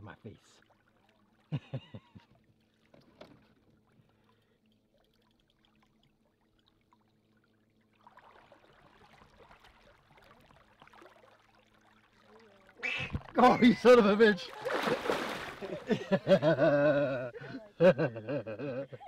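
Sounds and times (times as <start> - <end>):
water splashing and lapping: 0.0 - 16.3.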